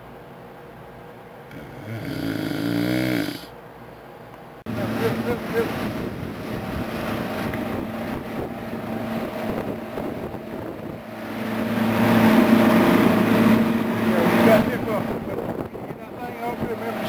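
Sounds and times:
outboard motor running: 4.7 - 17.0
water noise: 4.7 - 17.0
wind noise: 4.9 - 17.0.

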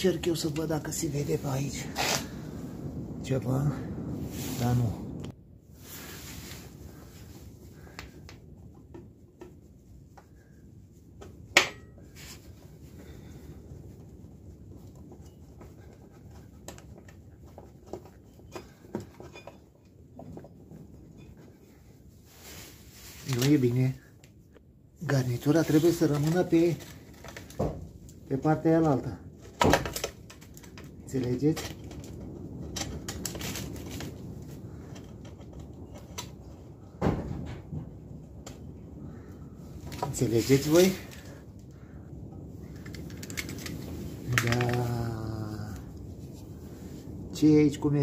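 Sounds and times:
faint low rumble: 0.0 - 48.0
light clicks of parts: 42.7 - 45.0.

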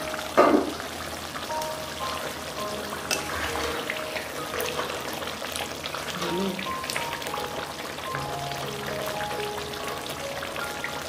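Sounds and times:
soft background music: 0.0 - 11.0
curry bubbling and sputtering: 2.3 - 10.7.

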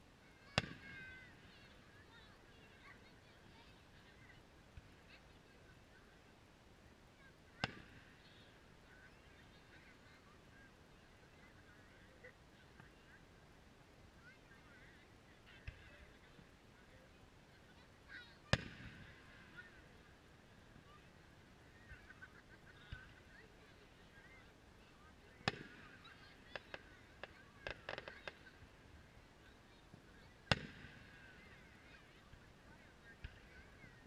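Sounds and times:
firework pops and crackles: 18.5 - 19.2, 25.4 - 28.6, 30.5 - 31.3.

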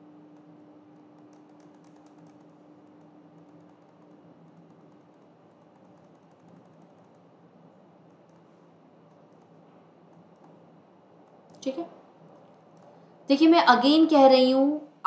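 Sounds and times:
low steady hum: 0.0 - 15.0
tapping on computer keyboard: 0.3 - 7.3, 8.0 - 8.5, 9.1 - 10.6.

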